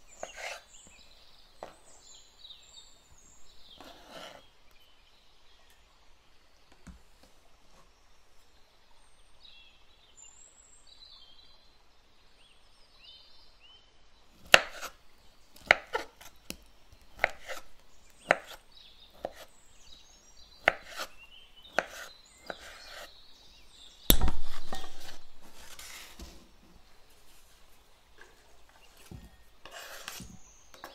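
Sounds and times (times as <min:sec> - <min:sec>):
knife chopping on cutting board: 0:14.5 - 0:15.0, 0:15.6 - 0:16.2, 0:17.2 - 0:17.6, 0:18.2 - 0:18.6, 0:20.6 - 0:21.1, 0:21.7 - 0:23.1.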